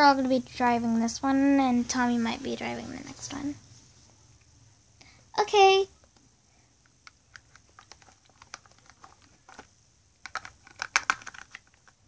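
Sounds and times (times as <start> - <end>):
plastic toys clicking and clacking: 6.9 - 12.0.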